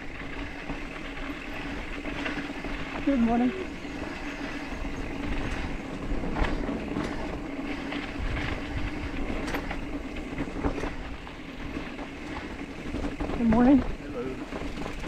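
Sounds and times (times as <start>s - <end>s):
bike clicks and rattles: 0.0s - 15.0s
bike tyres rumbling on dirt: 0.0s - 15.0s.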